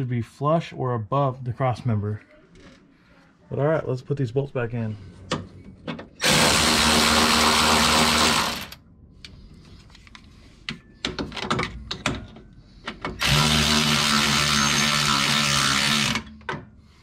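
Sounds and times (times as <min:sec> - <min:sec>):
tool clicking and knocking on bolts: 0:10.7 - 0:13.5, 0:15.2 - 0:16.7
electric ratchet motor whine: 0:13.2 - 0:16.3.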